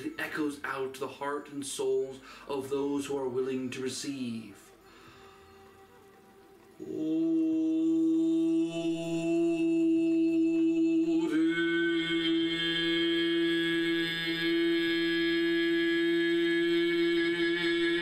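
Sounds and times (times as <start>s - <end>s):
man intoning a long note: 6.8s - 18.0s.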